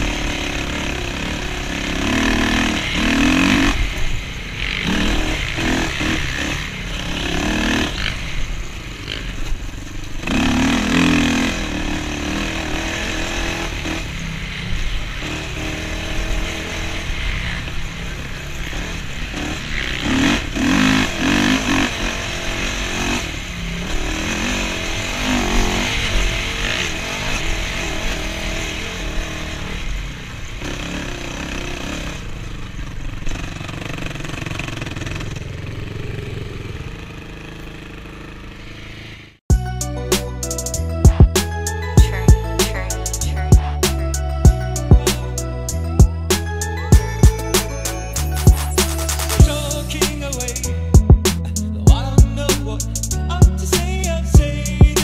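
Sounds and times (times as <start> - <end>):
quad engine revving: 0.0 - 55.0.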